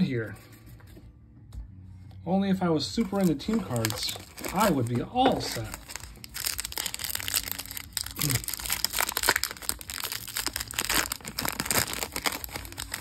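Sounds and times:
foil wrapper crinkling: 3.0s - 13.0s.

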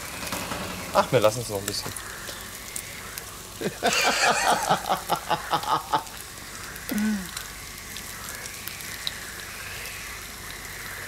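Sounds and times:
bacon and eggs sizzling: 0.0s - 11.0s
person laughing: 3.6s - 6.2s.

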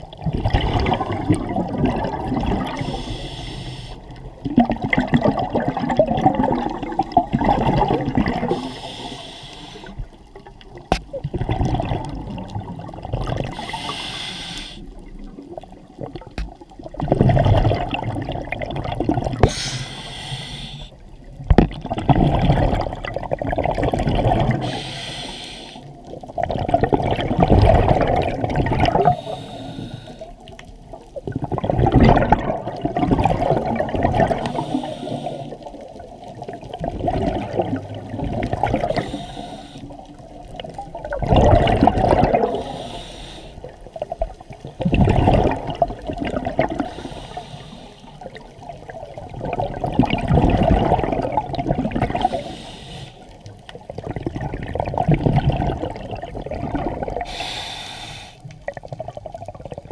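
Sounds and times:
exhaled bubbles rushing: 0.0s - 3.2s, 4.0s - 9.2s, 9.9s - 14.0s, 14.8s - 19.8s, 21.0s - 24.8s, 25.9s - 42.9s, 43.6s - 52.5s, 53.5s - 57.5s, 58.6s - 59.9s
regulator inhale hiss: 2.7s - 4.2s, 8.5s - 10.2s, 13.5s - 15.0s, 19.4s - 21.0s, 24.6s - 26.0s, 29.0s - 30.5s, 34.4s - 35.7s, 38.8s - 40.2s, 42.4s - 43.7s, 46.8s - 48.4s, 52.2s - 53.6s, 57.2s - 58.6s.

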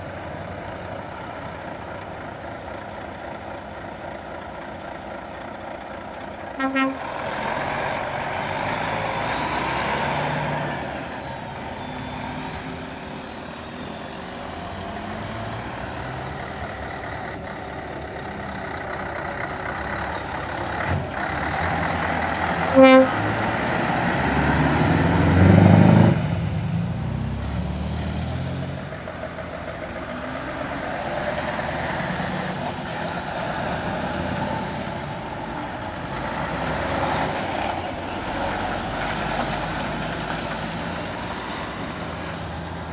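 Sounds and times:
diesel lorries pulling away: 0.0s - 42.9s
short horn toot: 6.6s - 7.1s, 22.7s - 23.2s.

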